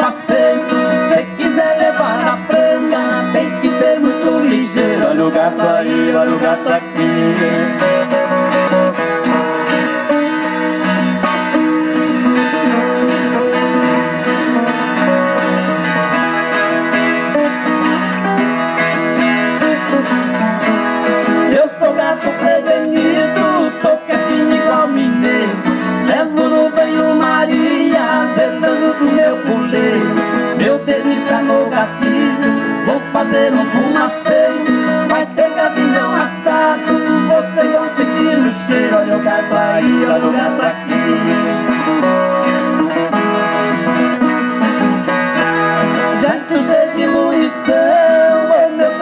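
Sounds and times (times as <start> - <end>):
acoustic guitars strummed and picked: 0.0 - 49.0.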